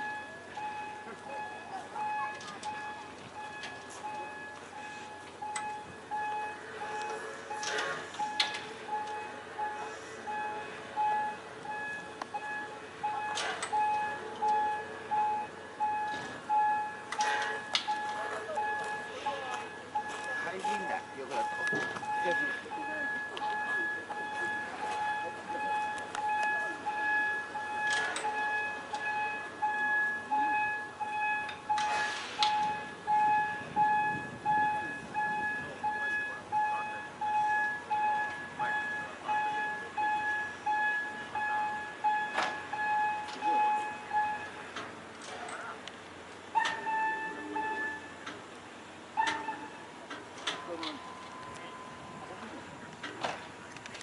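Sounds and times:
electronic warning beeps: 0:00.0 - 0:44.6, 0:46.6 - 0:48.2, 0:49.2 - 0:52.4
short steam hiss: 0:31.9 - 0:32.6.

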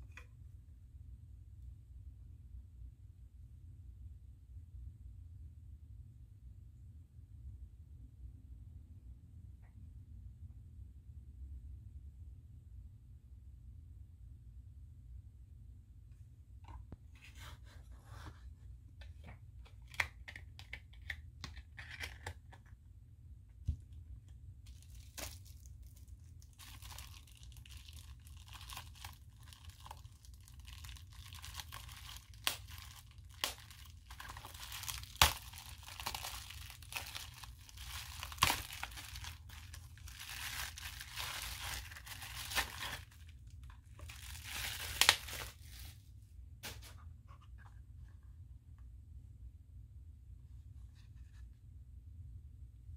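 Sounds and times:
bubble wrap crinkling: 0:24.7 - 0:46.0
bubble wrap sharp cracks: 0:24.7 - 0:46.0.

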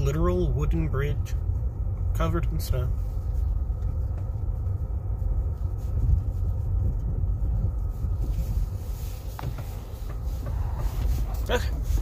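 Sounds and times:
car rumbling over snowy road: 0:00.0 - 0:12.0.

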